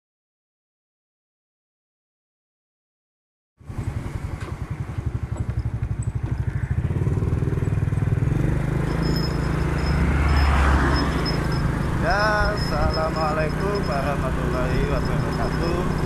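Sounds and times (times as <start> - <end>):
motorcycle engine accelerating: 3.6 - 16.0.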